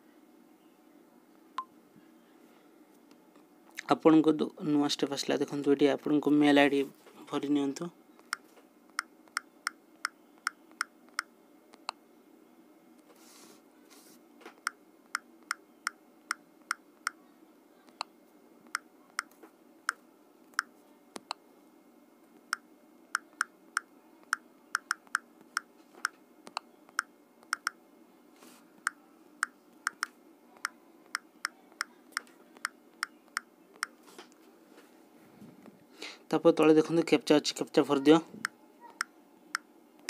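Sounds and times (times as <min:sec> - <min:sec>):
faint steady hum: 0:00.0 - 0:40.0
phone keyboard clicks: 0:29.9 - 0:30.1.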